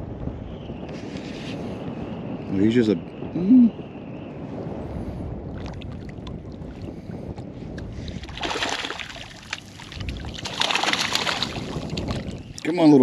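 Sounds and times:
steady low rumble: 0.0 - 13.0
fish splashing in water: 8.2 - 12.6.

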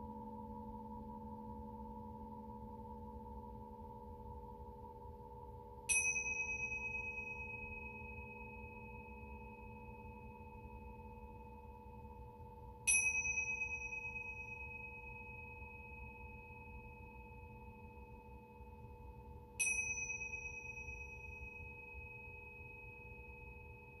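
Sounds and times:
singing bowls humming: 5.8 - 24.0
small high-pitched chime: 5.9 - 24.0.

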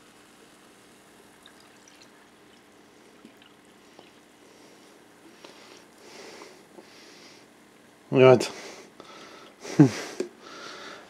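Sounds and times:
carbonation fizzing: 0.0 - 6.8
cola pouring into cup: 1.1 - 4.7.

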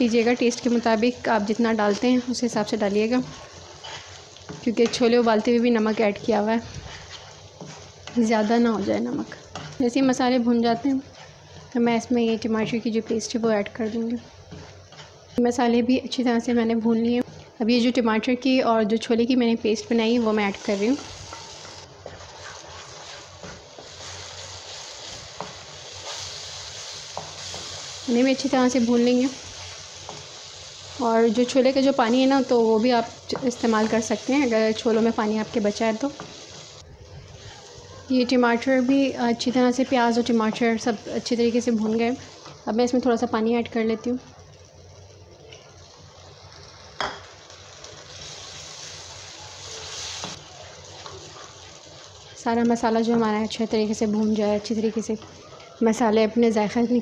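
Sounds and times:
paste sizzling in hot oil: 0.0 - 57.0
spatula scraping and tapping pan: 1.9 - 15.4, 20.9 - 28.5, 33.3 - 36.6.

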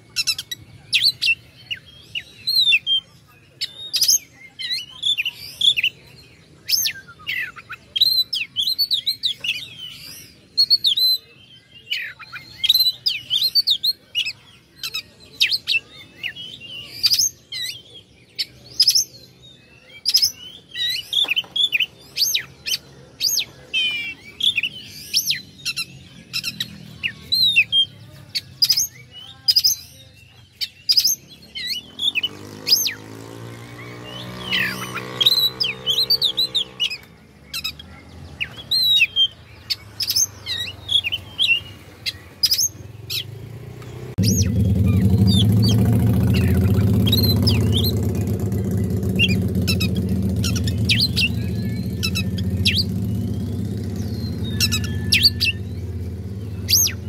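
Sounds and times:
songbird whistling and chirping: 0.0 - 57.0.

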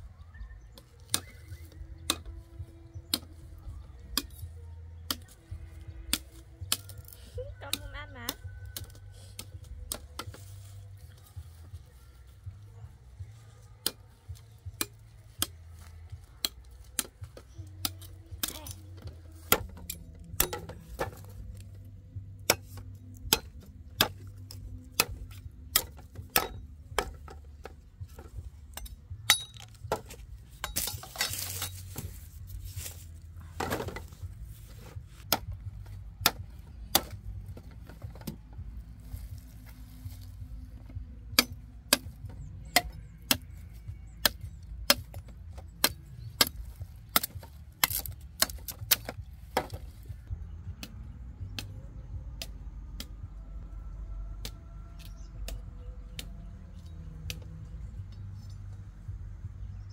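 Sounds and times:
machete chopping sugarcane: 1.0 - 2.4, 6.0 - 10.5, 13.8 - 21.7, 22.4 - 33.0, 34.8 - 38.4, 39.1 - 50.1.

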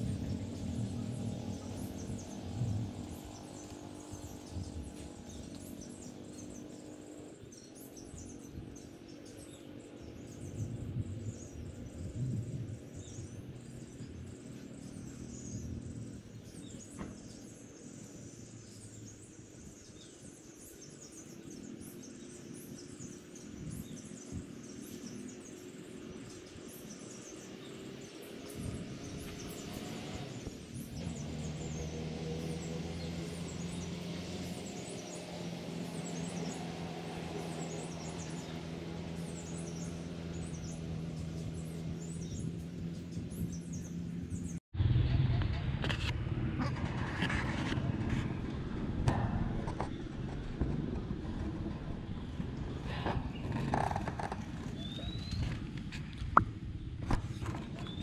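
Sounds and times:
birds chirping: 0.0 - 44.6, 47.2 - 58.0
low hum: 28.5 - 58.0.

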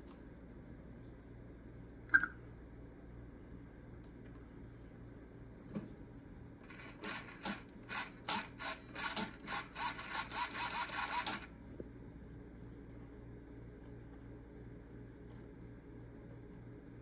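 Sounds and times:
electric motor throttle bursts: 6.7 - 11.5.

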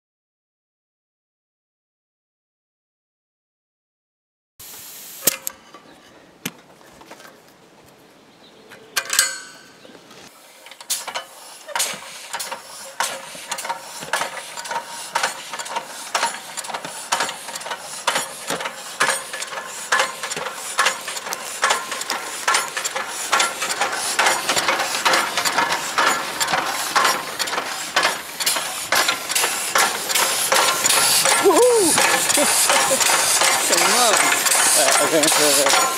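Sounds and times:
air hiss: 4.6 - 5.5, 10.4 - 35.9
air puffs and valve clicks: 4.6 - 5.6, 10.6 - 35.9.

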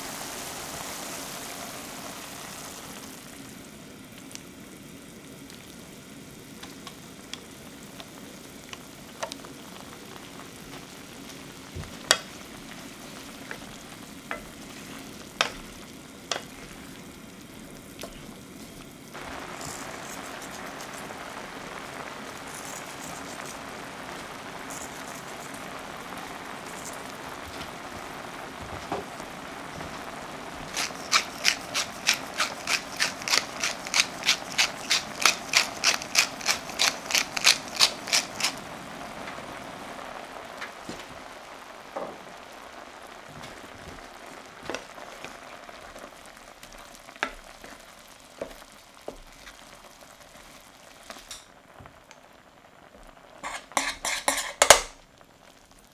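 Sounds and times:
sauce simmering and bubbling: 0.0 - 55.9
pepper mill grinding clicks: 30.8 - 38.5.

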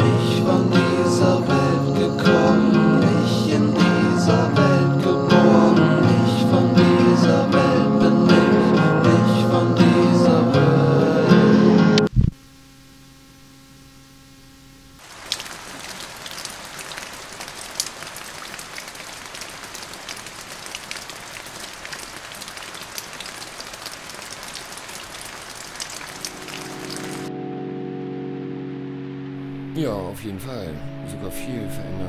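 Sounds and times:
guitar music: 0.0 - 12.1, 26.2 - 32.0
faint hum: 12.0 - 15.0
rain falling on foliage: 15.0 - 27.3.

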